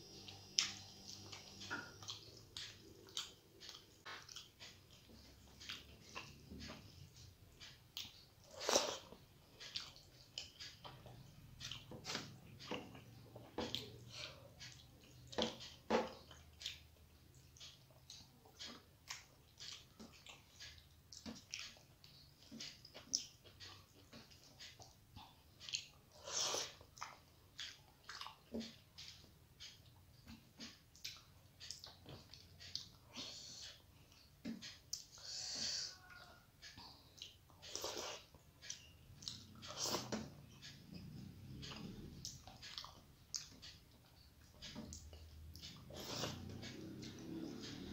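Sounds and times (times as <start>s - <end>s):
person chewing with wet mouth clicks: 0.3s - 6.8s, 7.6s - 35.2s, 36.0s - 47.9s.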